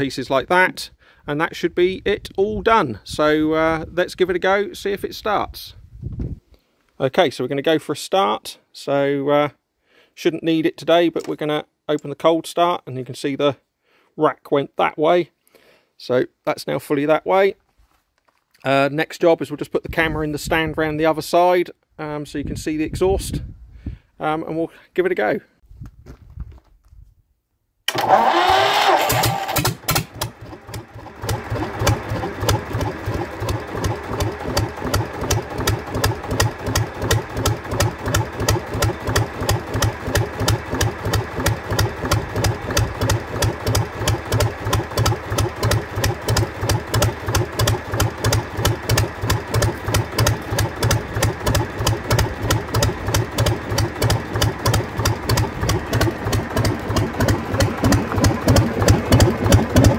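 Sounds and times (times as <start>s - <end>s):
starter cranking diesel engine: 27.9s - 59.9s
diesel engine idling: 30.0s - 59.9s.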